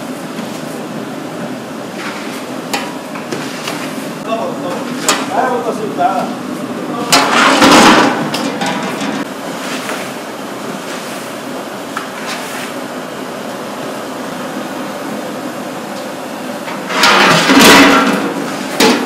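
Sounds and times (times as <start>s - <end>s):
paddles clanking on metal pots: 2.0s - 3.9s, 4.7s - 5.6s, 7.1s - 9.3s
fires rushing: 16.6s - 18.8s.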